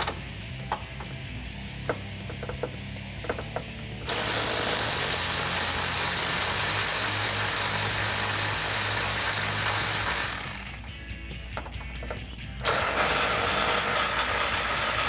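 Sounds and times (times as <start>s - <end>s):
electric ratchet spinning: 3.3s - 11.0s, 12.1s - 15.0s.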